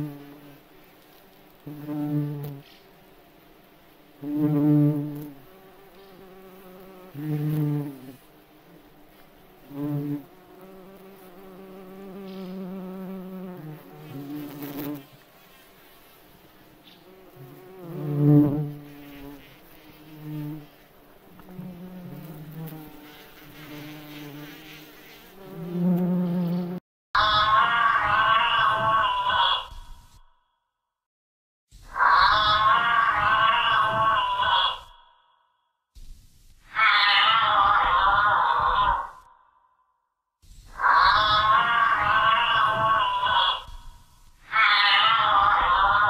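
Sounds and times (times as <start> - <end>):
insect buzzing: 0.0 - 26.8.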